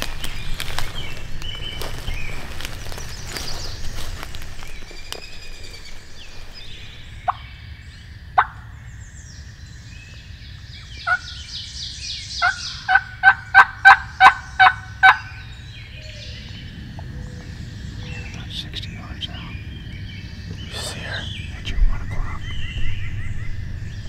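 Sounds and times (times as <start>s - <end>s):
songbird chirps: 0.0s - 24.0s
turkey yelping: 12.4s - 15.4s.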